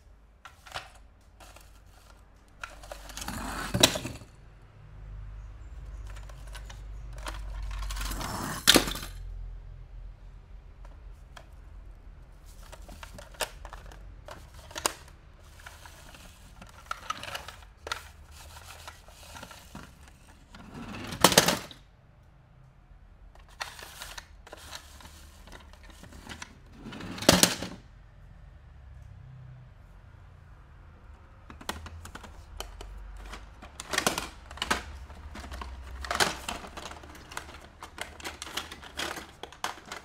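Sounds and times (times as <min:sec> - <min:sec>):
packaging rustling: 0:12.5 - 0:21.8, 0:23.4 - 0:26.6, 0:31.6 - 0:40.0
plastic and cardboard clicks: 0:31.4 - 0:40.0.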